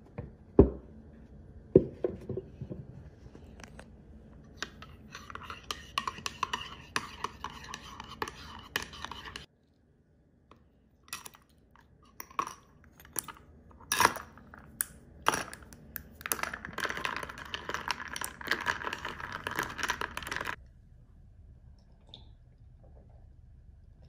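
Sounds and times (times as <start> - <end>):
spoon stirring ice rattle: 15.3 - 20.6
ice cubes clinking into mug: 16.2 - 20.6.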